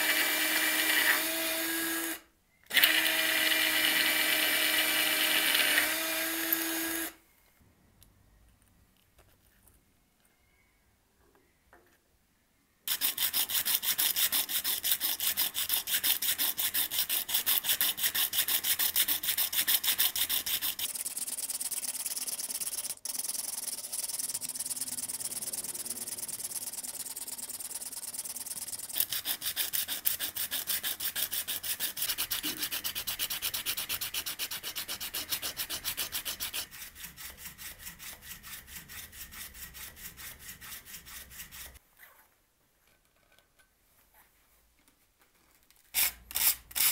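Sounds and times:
sandpaper rasping on steel: 0:12.9 - 0:22.6, 0:28.5 - 0:41.8.

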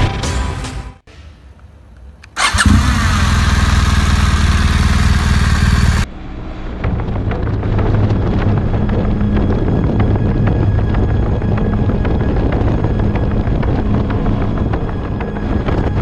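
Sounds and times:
motorcycle engine starting and idling: 0:02.3 - 0:06.1.

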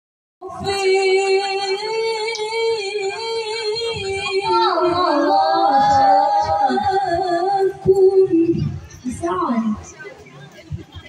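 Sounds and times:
woman singing into a microphone: 0:00.4 - 0:09.8.

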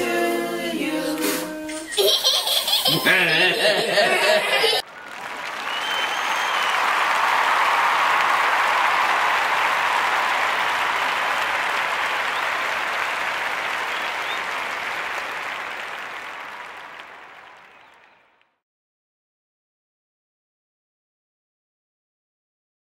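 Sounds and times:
group applauding: 0:02.8 - 0:18.6.

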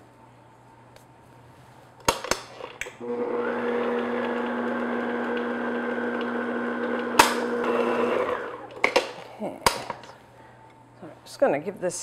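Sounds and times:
stand mixer motor running: 0:03.0 - 0:08.8
stand mixer head clicking: 0:03.9 - 0:07.8.

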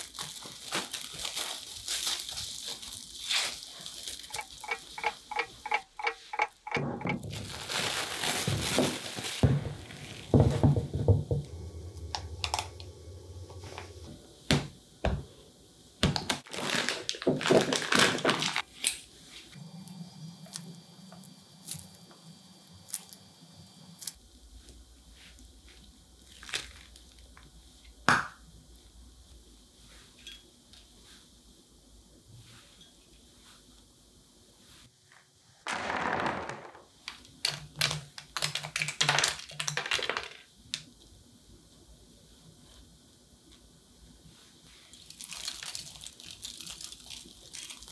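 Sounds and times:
piping bag crinkling: 0:00.0 - 0:05.4, 0:07.2 - 0:10.5, 0:16.2 - 0:18.7, 0:44.9 - 0:47.9
plastic cling wrap crinkling: 0:00.0 - 0:05.5, 0:07.0 - 0:11.0, 0:16.1 - 0:18.8, 0:26.2 - 0:27.5, 0:44.8 - 0:47.9.

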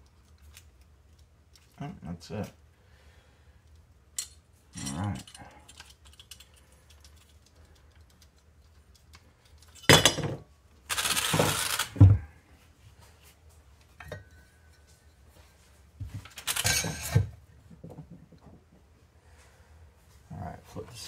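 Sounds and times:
metal tools clattering on workbench: 0:09.8 - 0:10.4, 0:16.4 - 0:17.3.

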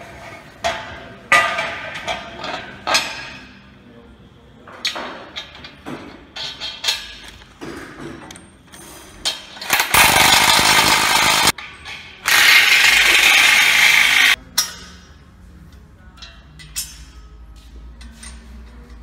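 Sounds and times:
metal parts clinking: 0:08.3 - 0:14.8
impact driver running bolts: 0:09.7 - 0:11.5, 0:12.3 - 0:14.4.

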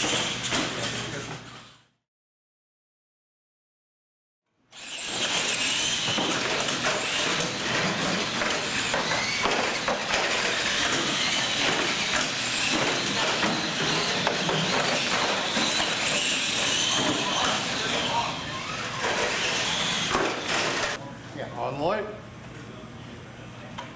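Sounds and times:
trucks rattling on concrete: 0:00.0 - 0:01.6, 0:05.0 - 0:21.0
toy truck motor whine: 0:04.7 - 0:21.0.

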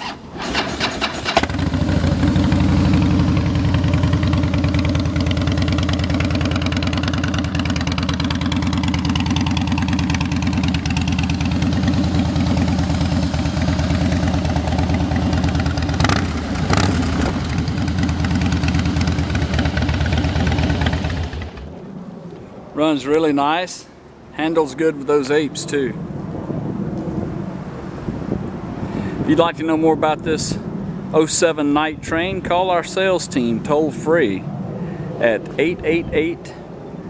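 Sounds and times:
motorcycle engine idling: 0:00.6 - 0:21.7.

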